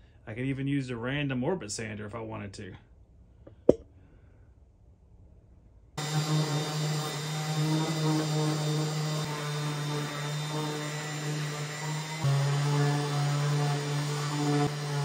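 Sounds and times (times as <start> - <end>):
orbital sander on wood: 6.0 - 15.0.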